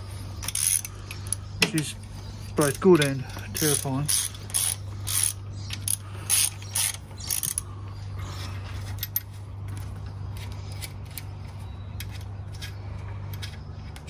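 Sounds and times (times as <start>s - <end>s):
steady low hum: 0.0s - 14.0s
ratchet wrench clicking: 0.4s - 1.4s, 3.0s - 7.6s.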